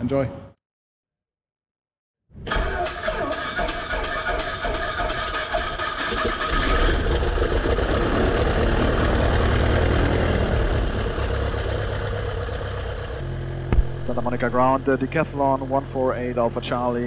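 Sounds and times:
propeller plane engine running: 6.5s - 17.0s.

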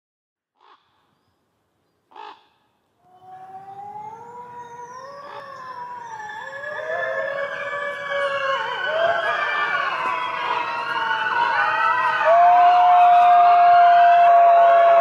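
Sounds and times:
short wolf calls: 2.1s - 3.4s
wolves howling: 3.1s - 15.0s.

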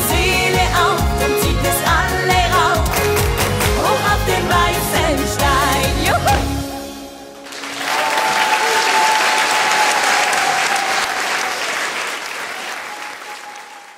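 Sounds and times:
studio audience clapping: 2.9s - 3.9s, 7.4s - 13.9s.

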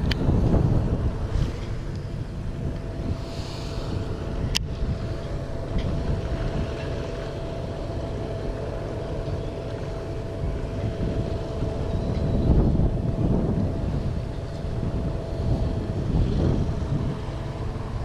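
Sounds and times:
faint steady hum: 0.0s - 18.0s
wind buffeting microphone: 0.0s - 18.0s.

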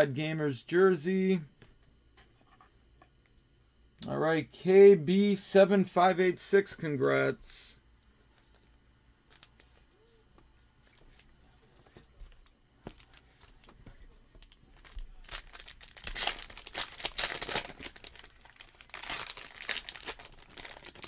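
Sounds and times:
foil wrapper tearing and crinkling: 14.4s - 21.0s.

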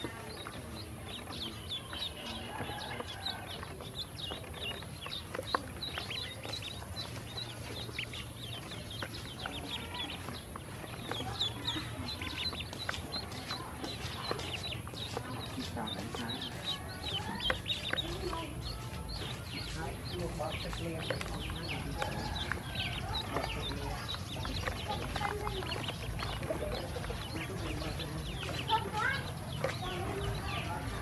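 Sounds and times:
ducklings peeping: 0.0s - 31.0s.

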